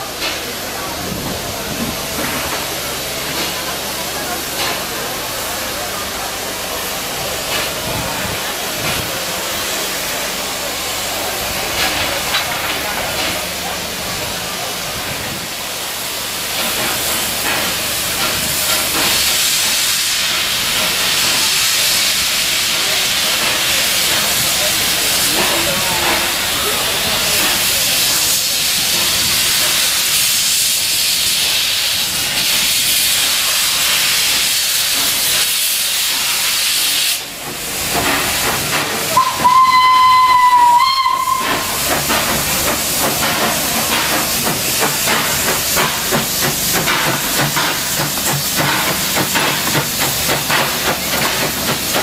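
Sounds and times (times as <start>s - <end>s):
steam locomotive hissing: 0.0s - 52.0s
train coaches rolling on rails: 0.0s - 52.0s
train wheel clicks: 16.5s - 52.0s.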